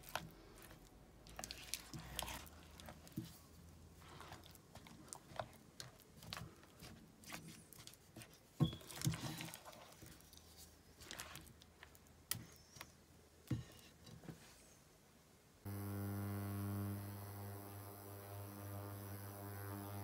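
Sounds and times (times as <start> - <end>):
spatula mixing thick batter: 0.0 - 13.0.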